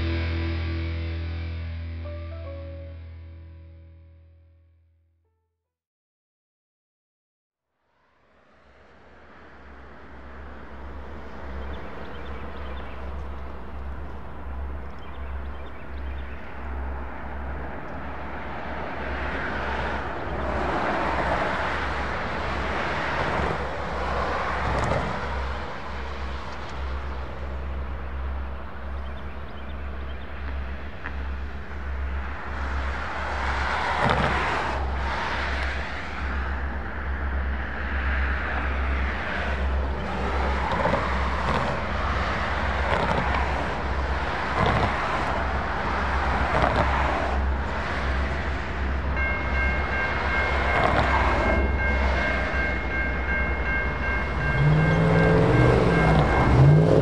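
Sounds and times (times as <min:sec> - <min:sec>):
diesel locomotive engine rumble: 0:00.0 - 0:04.0, 0:09.1 - 0:57.0
train wheels rolling: 0:38.0 - 0:57.0.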